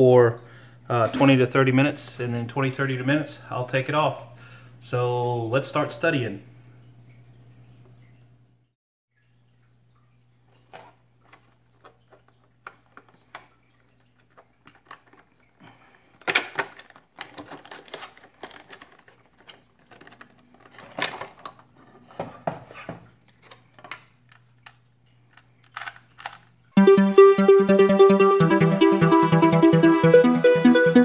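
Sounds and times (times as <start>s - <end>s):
plastic packaging crinkling: 10.5s - 21.9s
electronic music: 26.8s - 31.0s.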